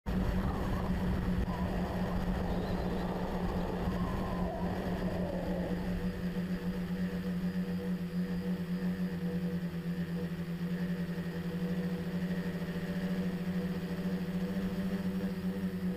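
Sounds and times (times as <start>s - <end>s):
rushing noise: 0.1s - 7.4s
drone motors and propellers droning: 0.1s - 15.9s.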